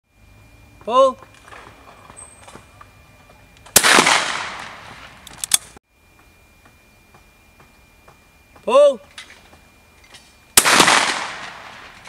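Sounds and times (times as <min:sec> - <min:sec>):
shotgun shot: 0:03.7 - 0:05.2, 0:10.6 - 0:12.0
sharp crack: 0:03.7 - 0:05.8, 0:10.6 - 0:12.0.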